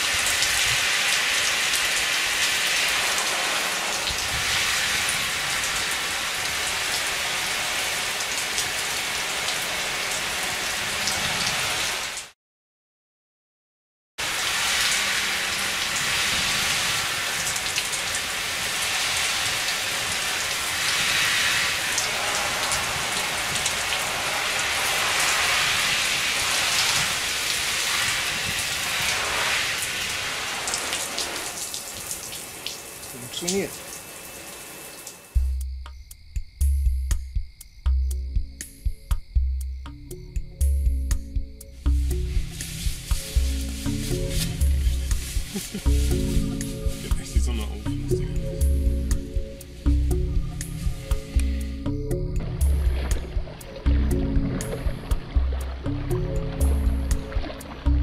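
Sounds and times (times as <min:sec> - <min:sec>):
water spray pattering on poncho: 0:00.0 - 0:12.3, 0:14.2 - 0:35.3, 0:41.8 - 0:48.2.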